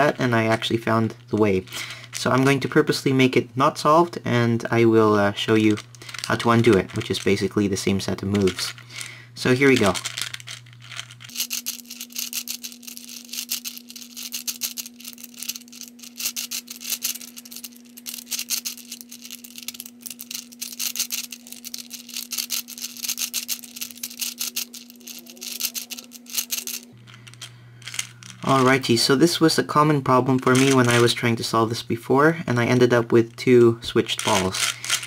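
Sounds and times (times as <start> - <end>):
plastic puzzle balls clicking: 5.6 - 7.6, 8.2 - 28.9, 30.5 - 31.0, 33.3 - 35.0.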